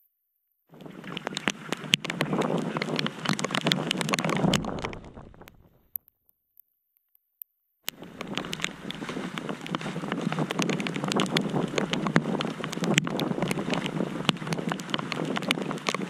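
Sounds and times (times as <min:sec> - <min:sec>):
wind buffeting microphone: 0:00.7 - 0:05.8, 0:07.9 - 0:16.0
small irregular ticks: 0:00.7 - 0:16.0
water splashing on wet pavement: 0:07.9 - 0:16.0.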